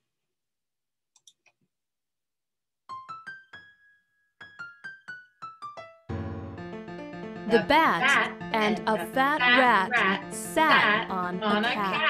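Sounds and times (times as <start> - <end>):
piano-like tune: 2.9 - 12.0.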